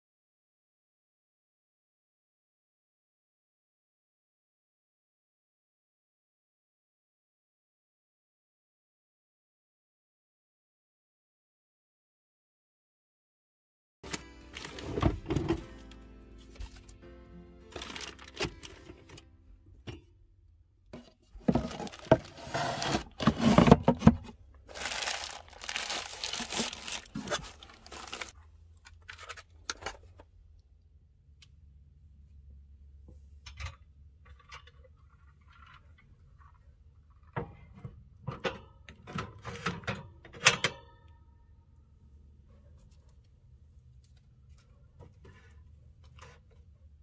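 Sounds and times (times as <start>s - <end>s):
packaging rustling and crinkling: 14.1s - 15.7s, 17.7s - 19.2s, 21.4s - 23.9s, 24.6s - 28.4s.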